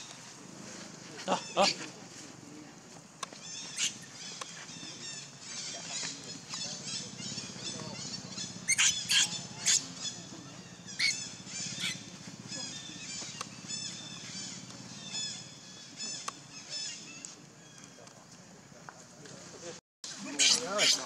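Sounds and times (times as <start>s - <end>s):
baby monkey squealing: 6.8s - 10.2s, 10.9s - 15.4s, 20.3s - 21.0s.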